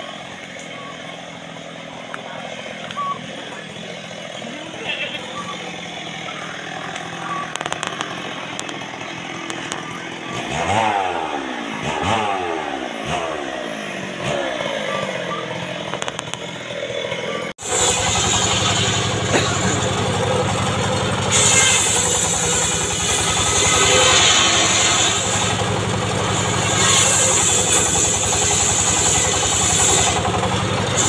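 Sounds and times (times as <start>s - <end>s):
engine pitch falling: 0.0s - 31.0s
saw blade ripping planks: 0.0s - 31.0s
sawmill engine running: 0.0s - 31.0s.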